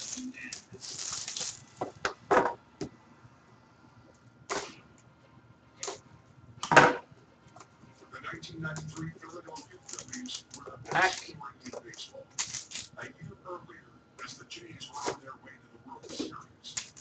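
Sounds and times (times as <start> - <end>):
plastic wrap rustling: 0.0 - 2.1, 8.8 - 11.4, 12.3 - 12.9, 16.1 - 17.0.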